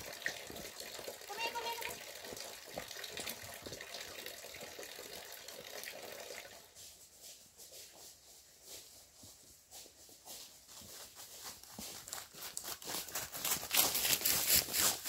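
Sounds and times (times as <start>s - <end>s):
water running and splashing: 0.0s - 6.8s.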